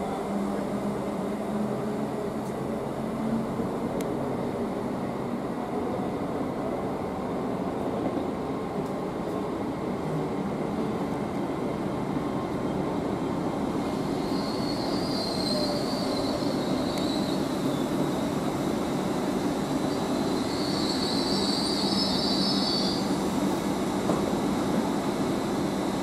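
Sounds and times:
high wheel squeal: 0:14.1 - 0:18.0, 0:19.9 - 0:23.1.

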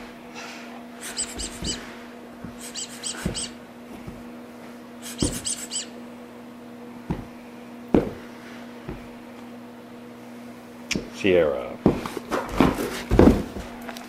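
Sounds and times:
squeaky toy squeaking: 0:01.0 - 0:01.8, 0:02.6 - 0:03.5, 0:05.2 - 0:05.9
thumps: 0:01.2 - 0:01.8, 0:02.4 - 0:04.3, 0:05.1 - 0:05.6, 0:07.0 - 0:08.2.

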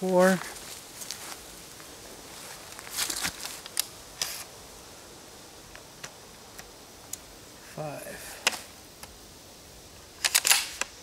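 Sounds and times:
rustling: 0:00.0 - 0:04.6
shotgun loading clicks: 0:10.2 - 0:10.9.

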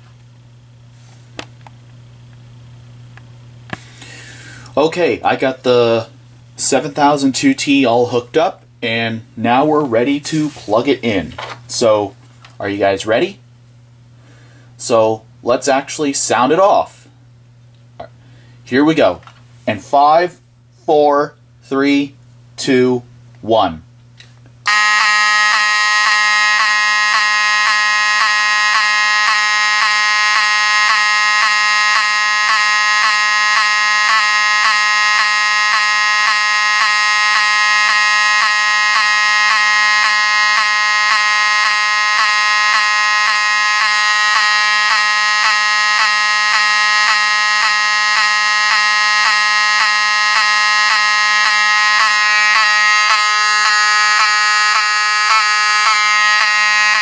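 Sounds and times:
fire alarm horn buzzing: 0:24.6 - 0:57.0.

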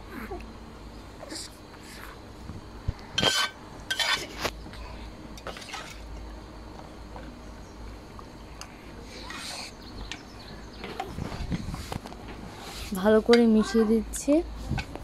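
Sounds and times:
spatula scraping bowl: 0:03.2 - 0:04.4.

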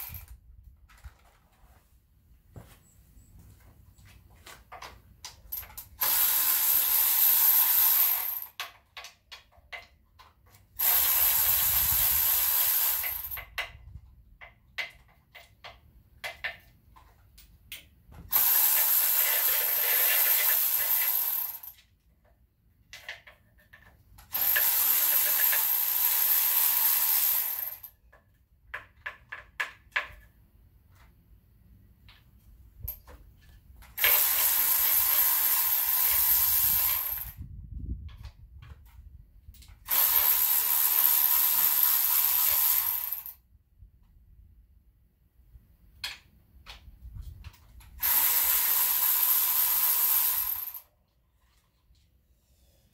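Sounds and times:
power tool whirring: 0:06.0 - 0:08.6, 0:10.8 - 0:13.4, 0:18.3 - 0:21.8, 0:24.3 - 0:27.9, 0:34.0 - 0:37.4, 0:39.9 - 0:43.4, 0:48.0 - 0:50.8.

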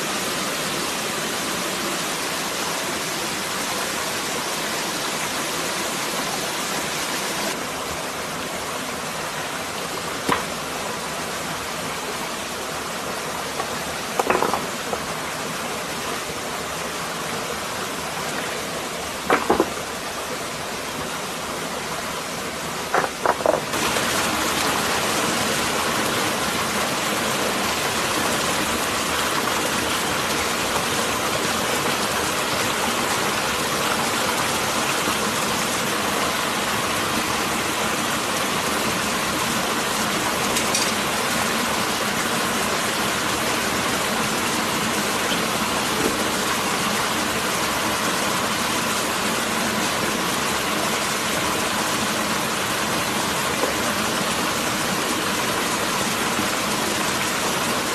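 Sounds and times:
stream cascade over rock: 0:00.0 - 0:57.9.

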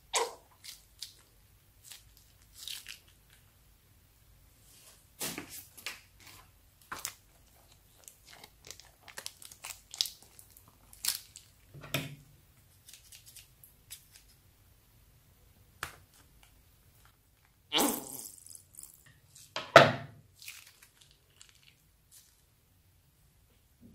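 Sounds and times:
plastic bag crinkling: 0:06.8 - 0:11.7, 0:20.3 - 0:22.5.

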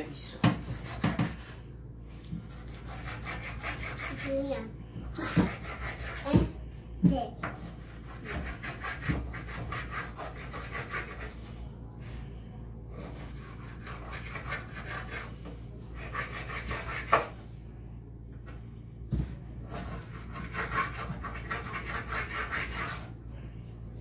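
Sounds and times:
knife sawing through fish: 0:02.5 - 0:04.4, 0:05.2 - 0:06.3, 0:07.9 - 0:11.6, 0:12.9 - 0:17.3, 0:19.6 - 0:23.1.

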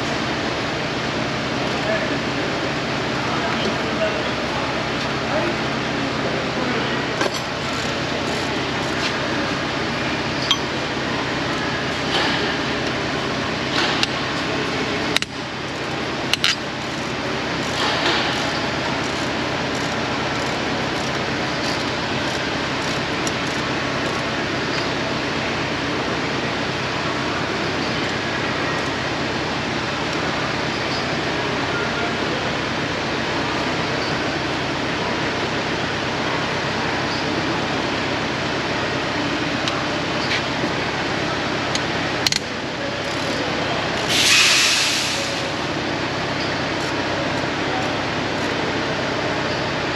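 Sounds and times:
steady background hum: 0:00.0 - 0:49.9
metal tools clinking on engine: 0:10.4 - 0:10.8.

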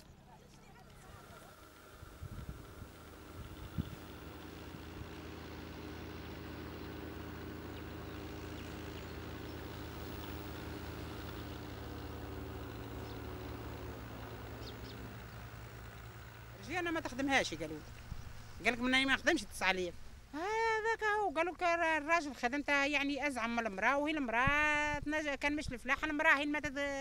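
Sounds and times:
tractor engine humming: 0:00.0 - 0:20.6.

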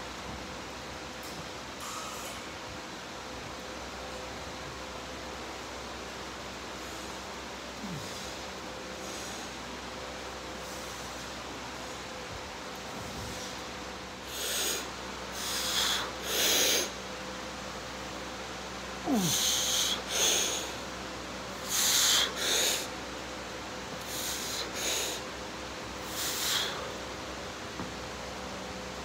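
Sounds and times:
steady background hum: 0:00.0 - 0:29.0
person breathing hard: 0:07.8 - 0:08.4, 0:14.2 - 0:17.0, 0:19.0 - 0:20.9, 0:21.6 - 0:22.9, 0:24.0 - 0:25.3, 0:26.0 - 0:27.0.

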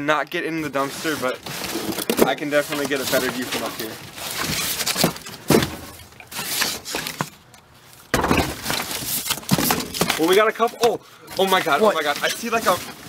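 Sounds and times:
cardboard packaging rustling: 0:00.5 - 0:13.0.

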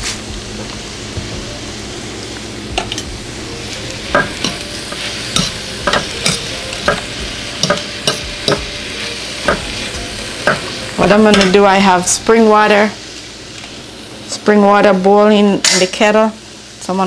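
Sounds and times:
vegetables sizzling: 0:00.0 - 0:17.0
metal spoon clinking against pan: 0:07.6 - 0:08.6.

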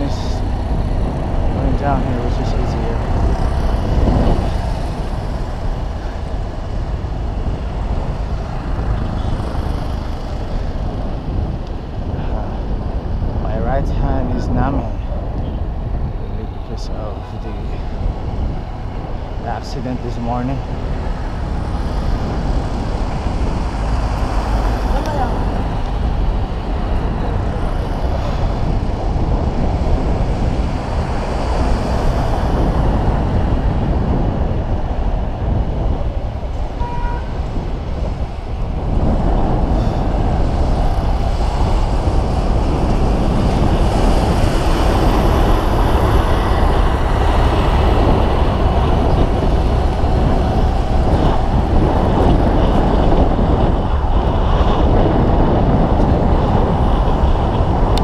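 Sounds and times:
wind rushing over microphone: 0:00.0 - 0:58.0.

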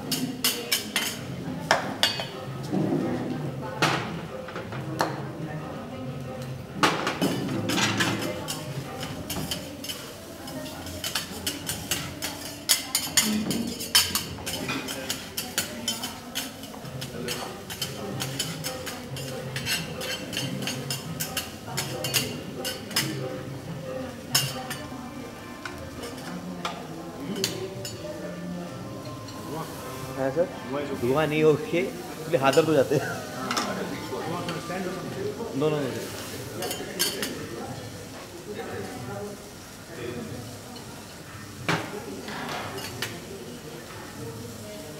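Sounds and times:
metal spatulas scraping on griddle: 0:10.7 - 0:23.2.

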